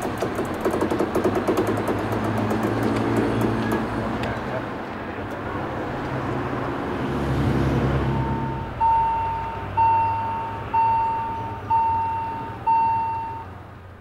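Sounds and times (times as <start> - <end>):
train rumbling: 0.0 - 7.0
railway warning gong ringing: 8.0 - 13.6.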